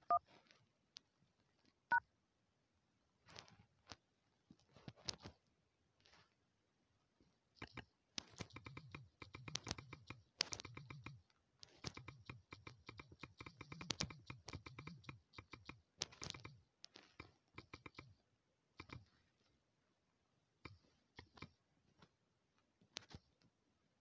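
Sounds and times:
typing on phone keyboard: 7.6 - 18.2, 18.8 - 19.1.

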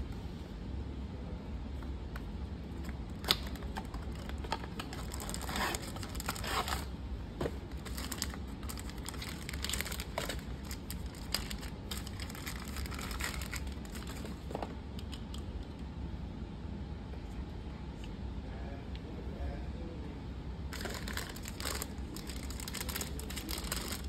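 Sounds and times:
tissue paper crinkling: 3.4 - 6.9, 7.7 - 14.5, 20.7 - 24.0.

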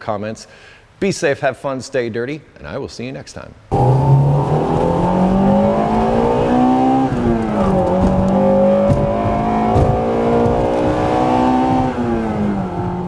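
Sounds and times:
car engine revving: 3.7 - 13.0.

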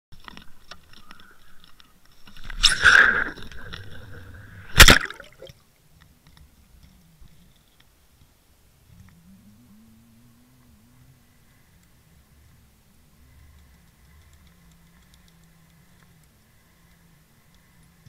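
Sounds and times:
camera smacking the water: 2.4 - 5.6.

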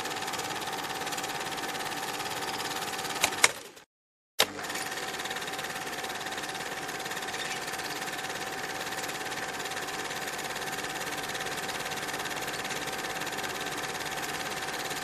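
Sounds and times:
film projector running: 0.0 - 3.8, 4.4 - 15.0
projector click: 3.2 - 3.6.

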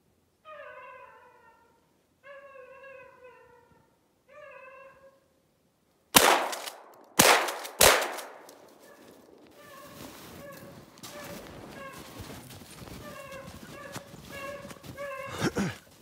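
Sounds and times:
hound baying: 0.4 - 5.2, 8.8 - 16.0
gunshots: 6.2 - 9.3.

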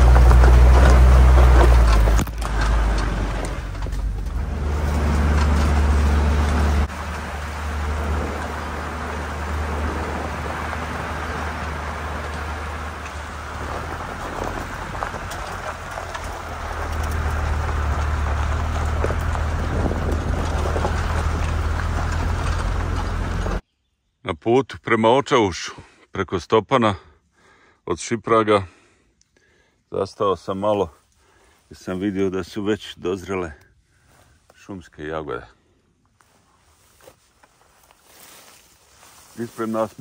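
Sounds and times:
tyres crunching on gravel: 0.0 - 23.6, 36.0 - 40.0
vehicle engine rumble: 0.0 - 23.6, 30.8 - 40.0.

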